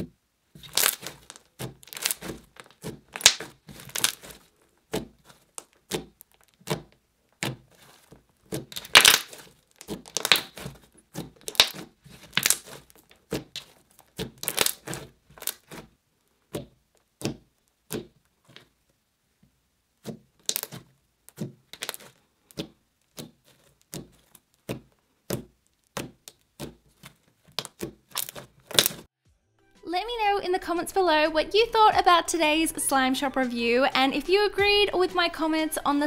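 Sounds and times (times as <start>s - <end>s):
slime crackling and popping: 0.5s - 18.8s, 19.9s - 29.1s.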